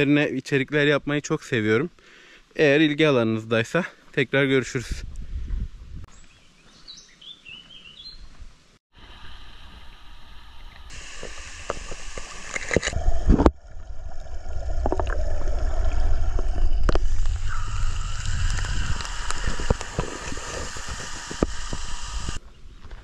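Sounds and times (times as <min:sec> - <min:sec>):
running water: 0:10.7 - 0:22.4
low rumble: 0:12.9 - 0:22.4.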